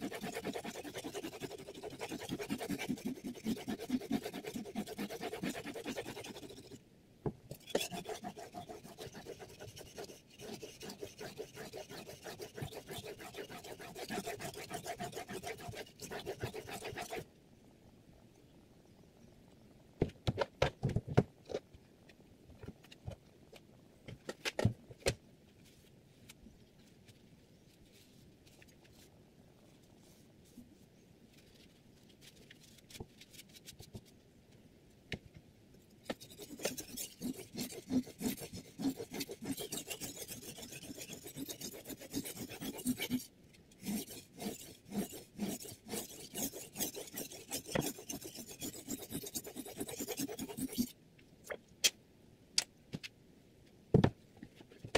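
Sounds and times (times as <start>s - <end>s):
knife blade rasping on whetstone: 0.0s - 6.8s, 7.6s - 17.2s, 36.1s - 50.9s.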